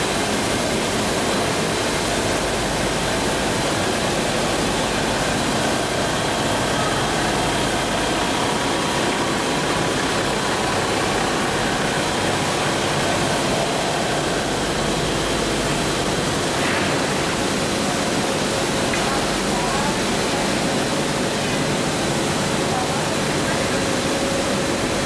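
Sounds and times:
production line machinery: 0.0s - 25.0s.

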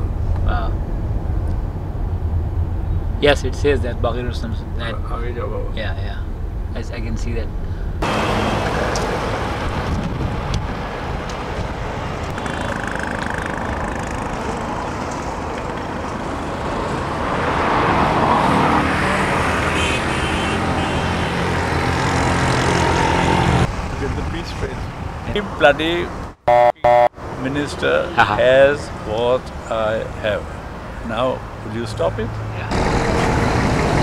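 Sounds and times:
road traffic: 0.0s - 34.0s
vehicle passing: 8.0s - 34.0s.

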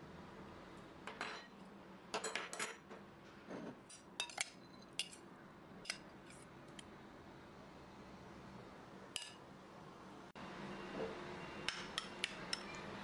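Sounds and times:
tableware clinking and scraping: 1.1s - 5.2s.

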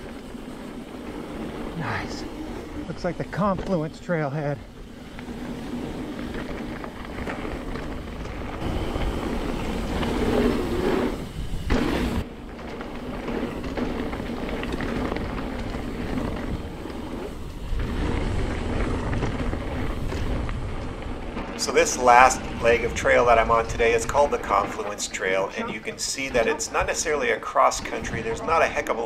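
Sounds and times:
bike tyres on dirt and rocks: 0.0s - 29.0s
wind on microphone: 4.9s - 24.6s, 27.8s - 29.0s.

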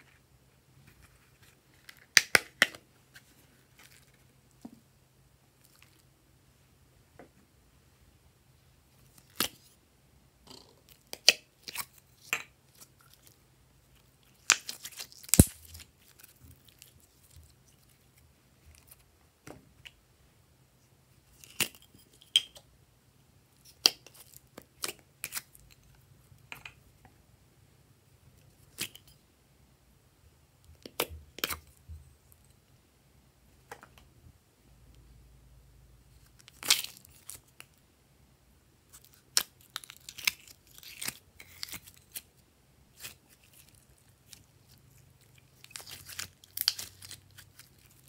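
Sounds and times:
plastic cup of slime crackling: 42.9s - 48.0s.

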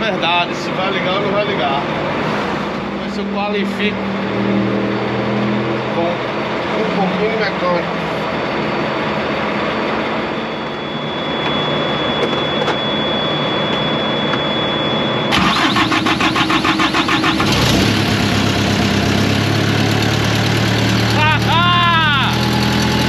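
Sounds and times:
diesel engine cranking and running: 15.3s - 23.0s.

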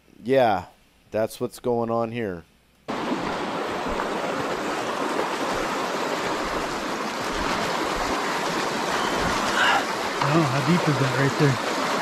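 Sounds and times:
river water rushing: 2.9s - 12.0s.

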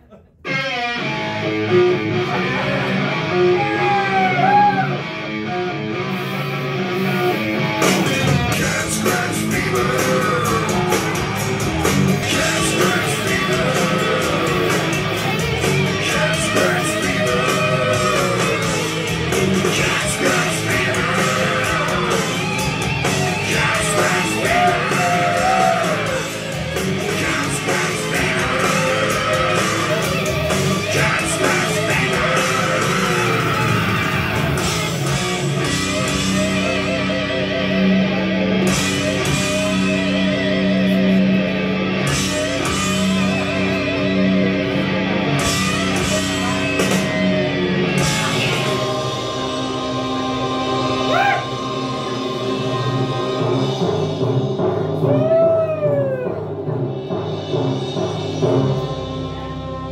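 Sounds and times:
rock and roll music with guitar: 0.4s - 59.9s.

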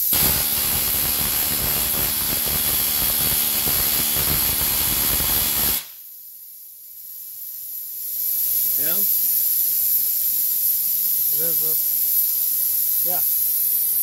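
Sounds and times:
faint steady hiss: 5.8s - 14.0s.

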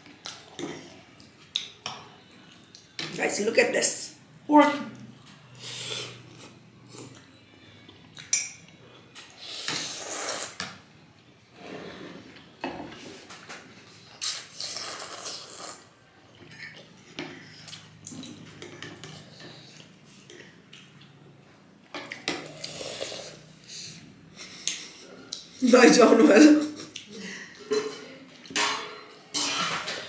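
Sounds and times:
cutlery clinking on ceramic bowls: 8.2s - 8.8s, 16.4s - 17.4s, 27.6s - 30.0s
slurping noodles: 9.4s - 10.6s, 14.2s - 15.9s, 22.4s - 24.0s.

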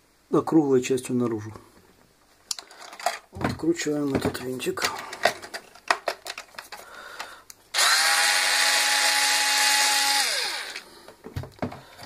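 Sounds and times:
cordless drill running: 7.7s - 10.9s.

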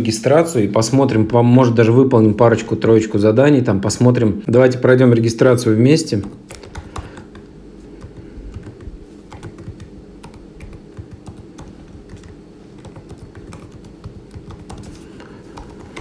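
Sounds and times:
low steady hum: 0.0s - 16.0s
keyboard typing: 6.2s - 16.0s.

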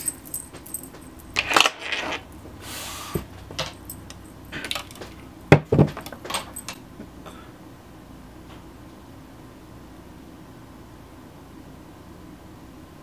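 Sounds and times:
makeup items clicking and clattering: 3.5s - 6.8s.

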